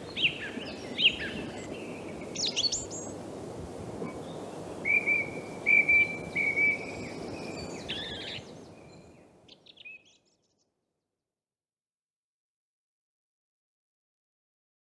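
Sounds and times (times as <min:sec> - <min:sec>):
song thrush singing: 0:00.0 - 0:03.2, 0:04.0 - 0:10.7.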